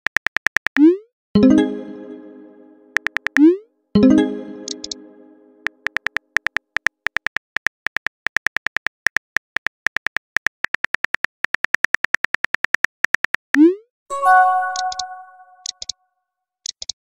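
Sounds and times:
message chime: 1.4 - 3.1, 4.0 - 5.7, 14.1 - 15.7.

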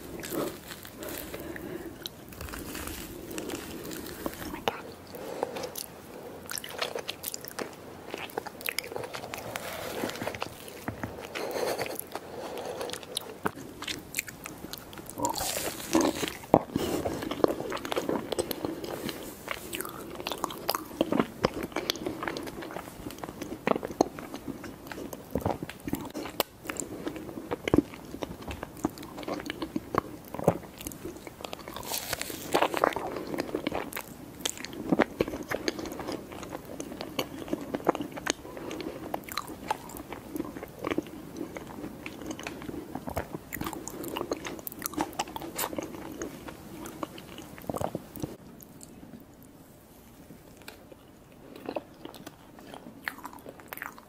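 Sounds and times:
sticky chewing with mouth clicks: 50.6 - 54.0.

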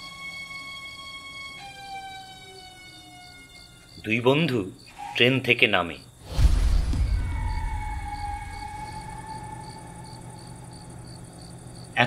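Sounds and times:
crickets chirping: 0.0 - 12.0
heavy low rumble: 6.2 - 11.6
faint tone sliding down: 6.3 - 11.0.

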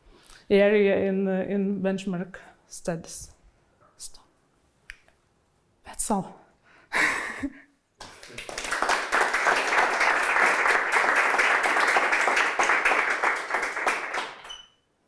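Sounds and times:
audience clapping: 8.0 - 14.7.

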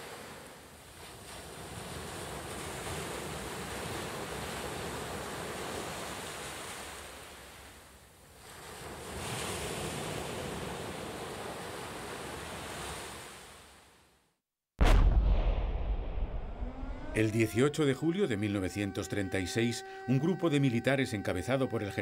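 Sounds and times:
sea waves washing on beach: 0.0 - 13.6.

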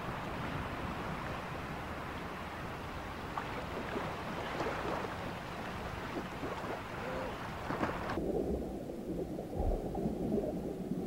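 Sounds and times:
small waves washing: 0.0 - 11.0
wind on microphone: 0.0 - 11.0
water splashing in shallows: 3.0 - 8.6.

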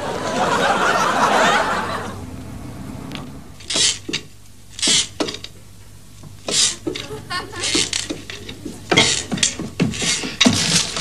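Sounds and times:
audience laughter: 0.0 - 3.4, 6.8 - 8.0
faint steady hum: 0.0 - 11.0.

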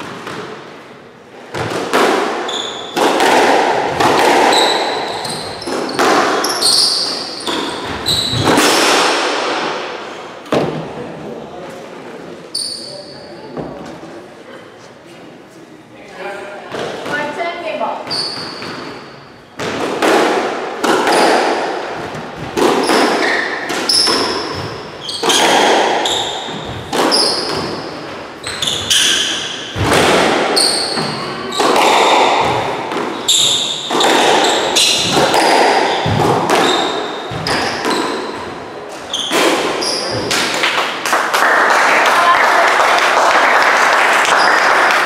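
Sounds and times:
squash ball hits echoing: 0.0 - 11.2, 16.7 - 42.2
shoes squeaking on wooden floor: 2.5 - 3.0, 4.4 - 8.6, 18.0 - 19.6, 22.8 - 29.5, 32.4 - 40.3.

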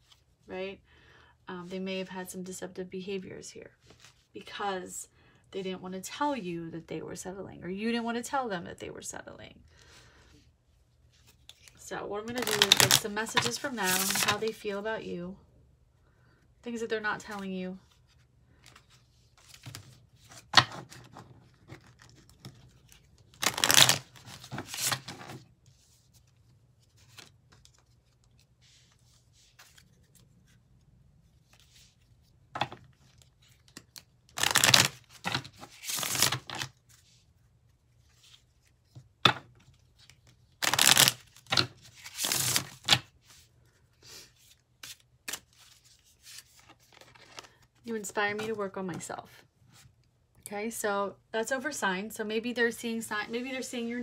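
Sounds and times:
cards shuffled by hand: 11.2 - 14.5, 18.0 - 30.6, 31.4 - 37.1, 38.0 - 43.4, 44.3 - 47.7.

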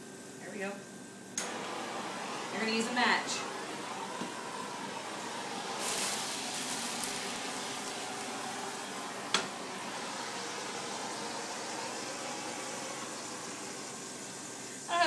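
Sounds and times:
gas torch hissing: 1.4 - 15.0
liquor sizzling in skillet: 1.6 - 15.0.

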